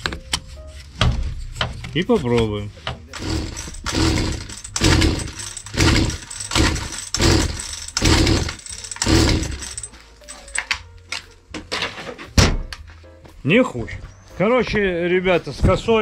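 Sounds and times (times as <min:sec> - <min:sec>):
recoil starter pulls: 0:03.1 - 0:10.8.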